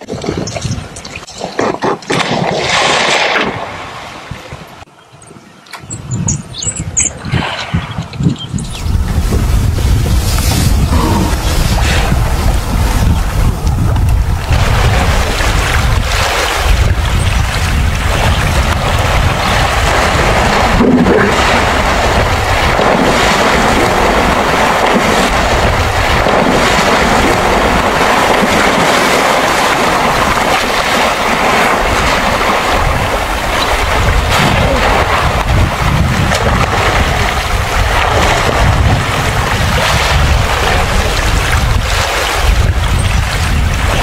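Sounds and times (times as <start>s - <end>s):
rushing water: 0.0s - 4.9s, 6.7s - 44.0s
wind buffeting microphone: 0.0s - 44.0s
low rumble: 7.8s - 16.1s.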